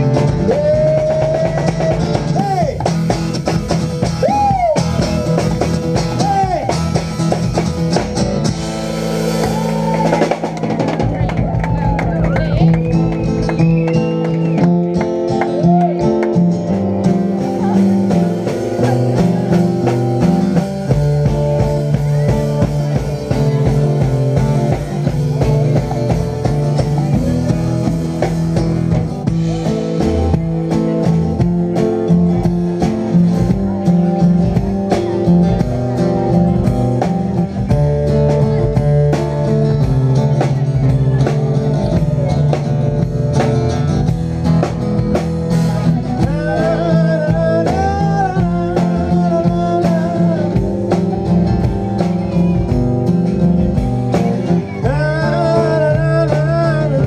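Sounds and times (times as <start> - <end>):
person singing: 0.0 - 2.9, 45.9 - 52.8, 54.1 - 57.0
acoustic guitar strumming: 0.0 - 57.0
drum kit beat: 0.0 - 57.0.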